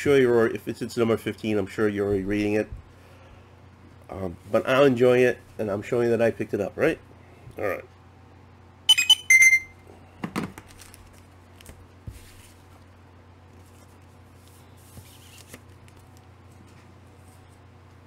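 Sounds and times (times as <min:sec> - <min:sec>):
faint steady hum: 0:00.0 - 0:18.0
plastic bags rustling: 0:10.6 - 0:12.7.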